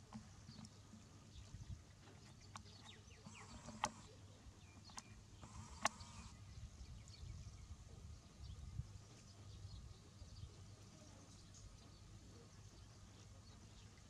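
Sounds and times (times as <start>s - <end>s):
sharp clicks: 2.5s - 4.1s, 4.9s - 6.3s.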